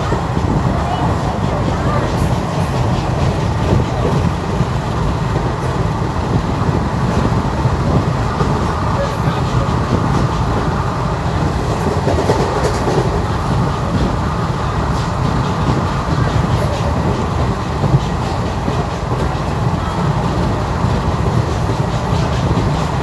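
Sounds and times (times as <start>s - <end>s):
train rumbling on track: 0.0s - 23.0s
wheels clacking over rail joints: 0.0s - 23.0s.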